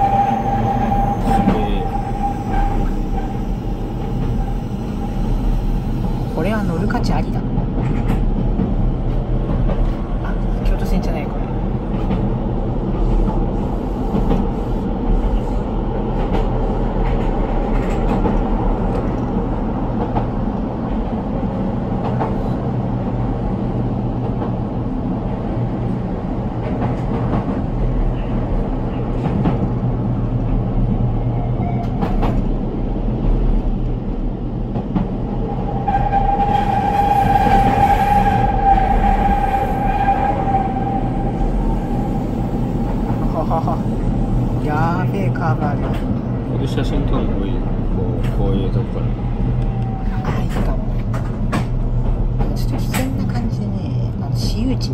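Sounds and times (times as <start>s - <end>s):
high squeal: 0.0s - 3.7s
train rumbling on rails: 0.0s - 54.9s.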